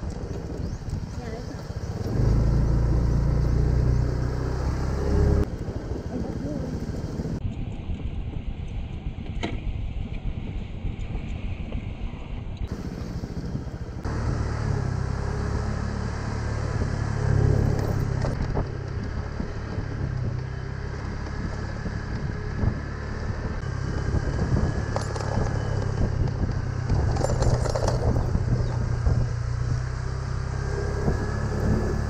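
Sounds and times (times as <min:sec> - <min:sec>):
scooter engine running: 0:00.0 - 0:07.4, 0:12.7 - 0:32.0
light rattles: 0:24.7 - 0:28.9.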